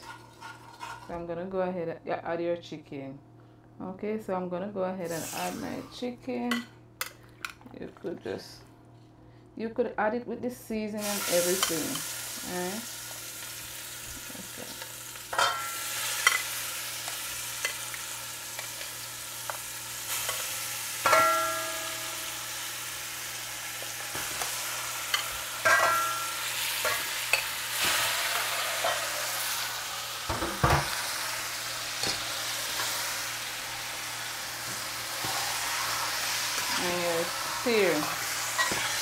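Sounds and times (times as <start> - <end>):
chicken sizzling in hot oil: 11.0 - 39.0
spoon and bowl clinking on pot: 15.3 - 16.5, 21.0 - 22.2, 25.1 - 27.5.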